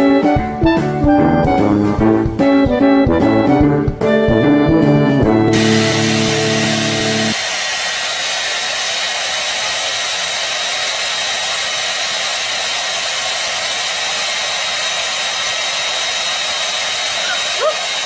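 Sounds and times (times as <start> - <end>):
hair dryer running: 5.5 - 18.0.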